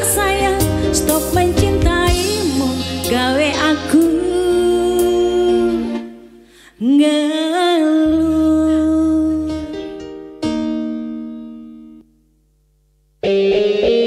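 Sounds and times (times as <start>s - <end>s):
woman singing pop song: 0.0s - 6.2s, 6.8s - 9.8s.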